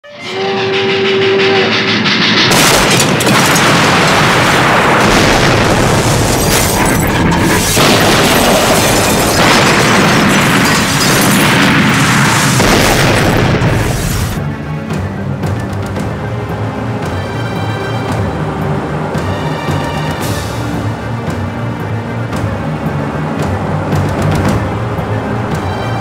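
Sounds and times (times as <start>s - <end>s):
steam locomotive whistle: 0.0s - 2.6s
heavy explosions: 1.3s - 14.4s.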